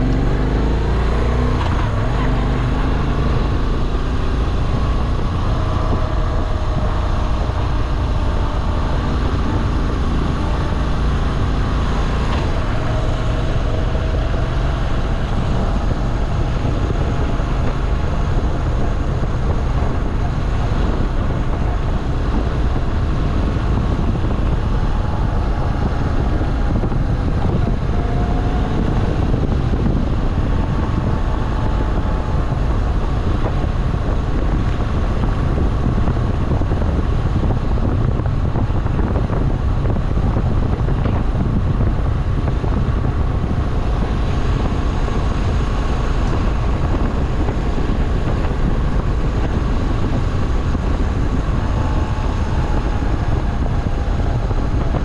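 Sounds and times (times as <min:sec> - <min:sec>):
motorcycle engine running: 0:00.0 - 0:55.0
wind noise on microphone: 0:00.0 - 0:55.0.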